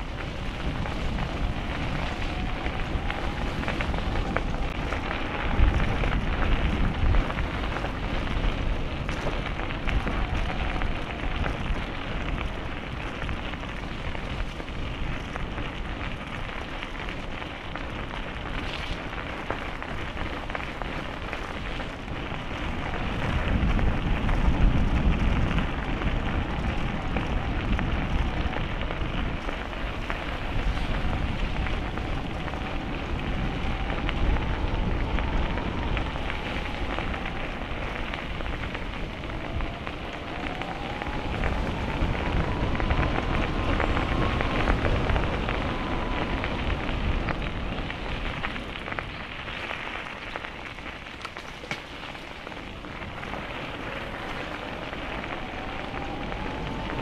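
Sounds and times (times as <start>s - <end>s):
bicycle tyre rumble: 0.0s - 57.0s
low wind buffeting: 0.0s - 57.0s
wind rush: 0.0s - 57.0s
faint wavering whine: 53.1s - 57.0s.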